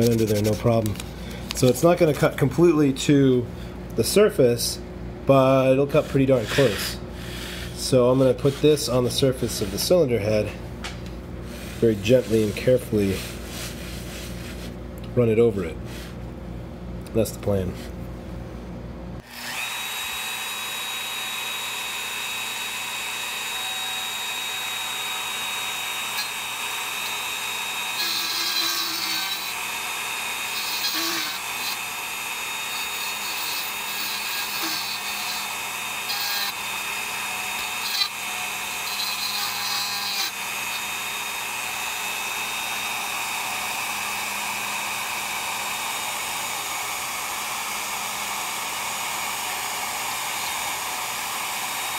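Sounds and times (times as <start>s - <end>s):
router high whine: 5.3s - 10.6s, 19.2s - 51.9s
end mill scratching metal: 5.8s - 10.1s.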